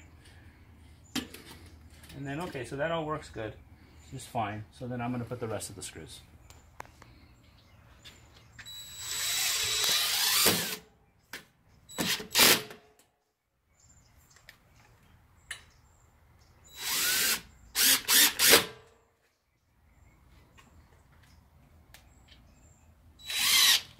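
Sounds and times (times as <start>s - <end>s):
cordless drill driving screws: 8.6s - 10.8s, 16.7s - 18.7s, 23.2s - 23.9s.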